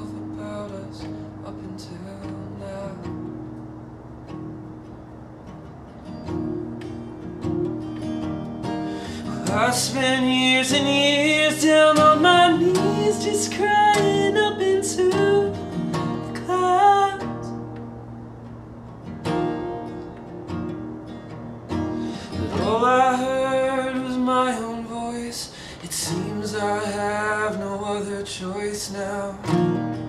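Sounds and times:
man singing: 0.0 - 3.2, 9.1 - 17.6, 22.3 - 30.0
acoustic guitar: 0.0 - 30.0.

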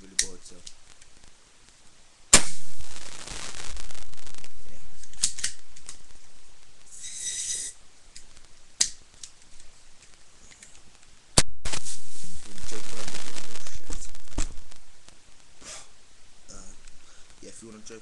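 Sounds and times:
short hiss: 6.8 - 7.8, 11.6 - 14.6.

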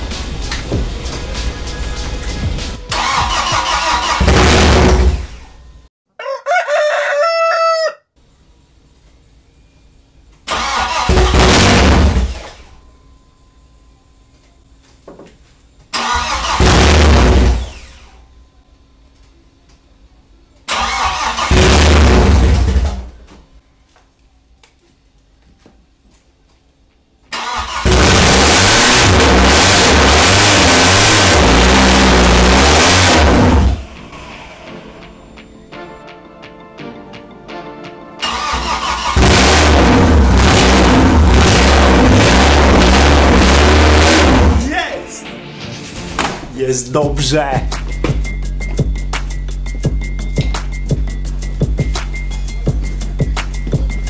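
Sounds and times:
engine cranking and starting: 2.9 - 5.6, 10.5 - 12.7, 15.9 - 18.2, 20.7 - 23.2, 27.3 - 34.8, 38.2 - 44.6
rooster crowing: 6.1 - 8.2.

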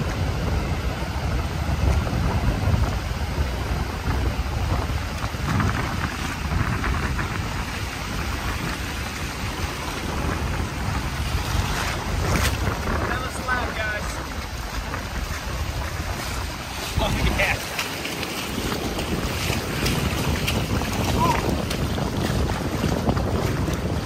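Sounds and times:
ocean surf washing in: 0.0 - 24.0
wind on microphone: 0.0 - 24.0
shallow water splashing: 3.9 - 24.0.

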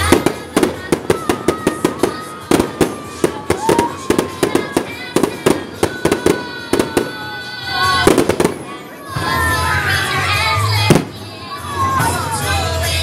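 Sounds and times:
fireworks bursting with sharp bangs: 0.0 - 8.9, 10.7 - 11.4.

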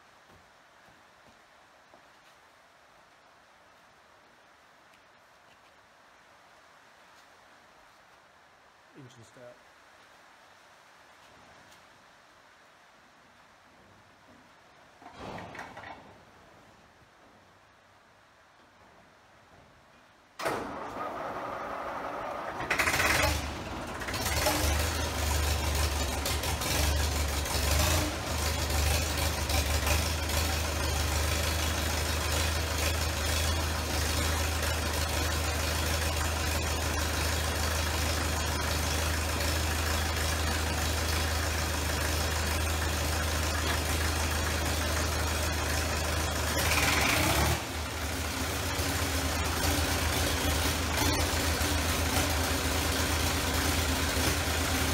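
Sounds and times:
tractor engine idling: 20.4 - 54.9
starter motor cranking: 22.5 - 25.2.

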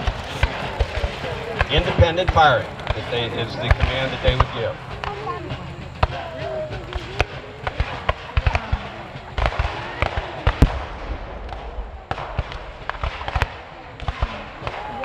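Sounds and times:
musket shots: 6.0 - 15.0.

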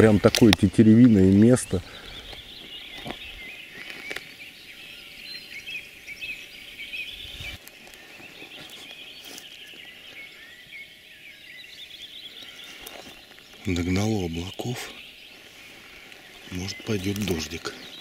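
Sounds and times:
chorus of birds calling: 0.0 - 18.0.

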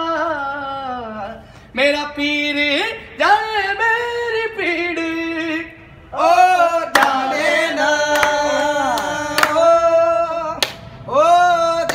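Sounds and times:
man singing unaccompanied: 0.0 - 11.9
sharp claps: 6.9 - 7.2, 8.1 - 9.6, 10.6 - 11.0.

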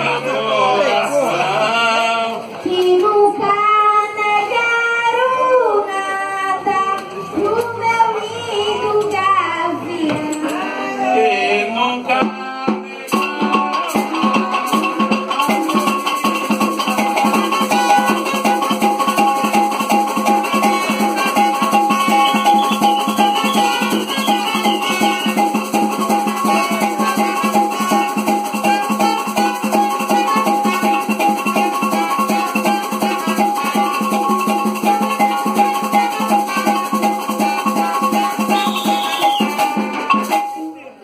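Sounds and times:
boy singing into a microphone: 2.6 - 14.6
shaker and drum rhythm: 12.0 - 41.0
held brass tones: 12.8 - 40.9.

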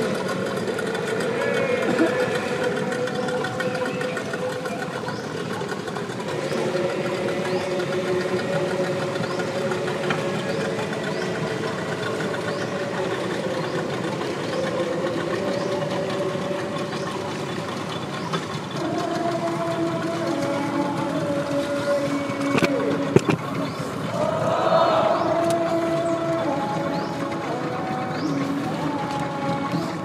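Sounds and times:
boat engine running: 0.0 - 30.0.

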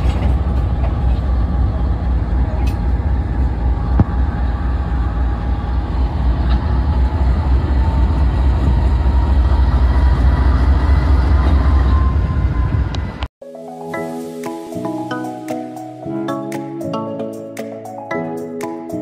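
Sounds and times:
train locomotive rumbling: 0.0 - 13.3.

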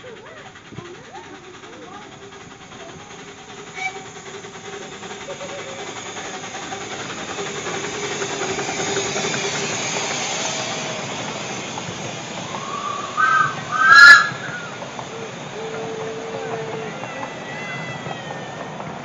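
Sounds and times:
steam locomotive hissing and puffing: 0.0 - 19.0
high-pitched squeals: 12.4 - 15.0.

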